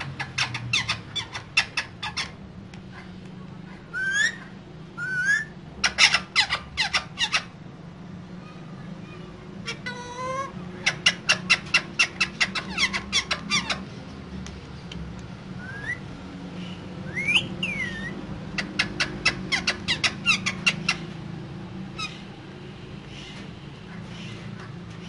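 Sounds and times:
parakeets squawking: 0:00.0 - 0:07.6, 0:09.5 - 0:14.0, 0:15.6 - 0:25.0
parakeet whistled calls: 0:03.9 - 0:07.5, 0:15.6 - 0:21.0.

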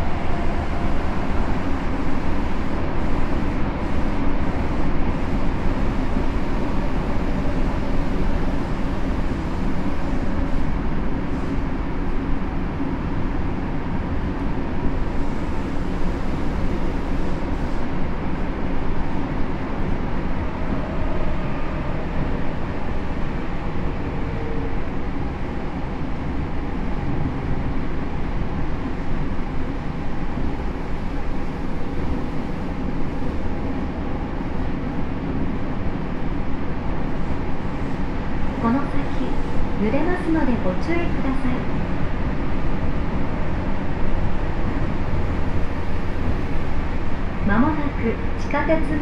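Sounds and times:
train wheels rumbling on rail: 0:00.0 - 0:49.0.

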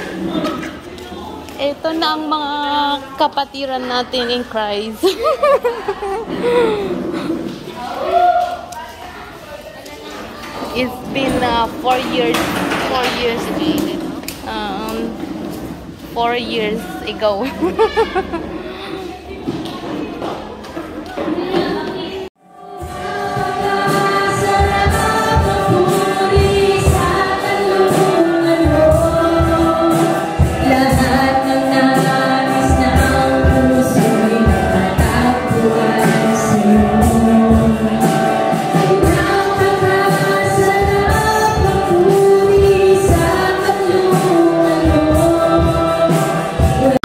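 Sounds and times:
steady drum beat: 0:10.8 - 0:18.7, 0:22.6 - 0:47.0
band accompaniment: 0:10.8 - 0:18.8, 0:22.5 - 0:47.0
congregation singing: 0:21.1 - 0:47.0.

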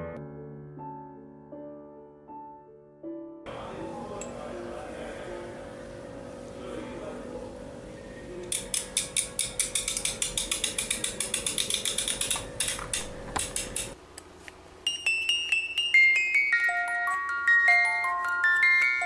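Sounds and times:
music box winding ratchet clicks: 0:08.5 - 0:14.0
music box chiming melody: 0:14.9 - 0:19.0.

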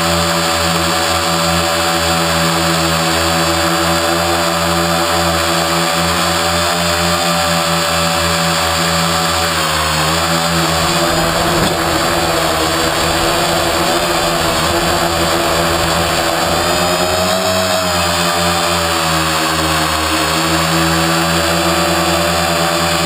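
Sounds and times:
drone motors whining: 0:08.0 - 0:22.1.

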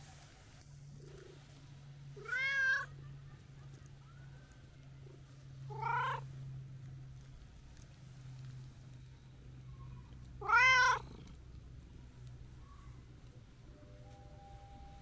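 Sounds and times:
cat meowing: 0:02.2 - 0:02.9, 0:05.7 - 0:06.2, 0:10.4 - 0:11.1.

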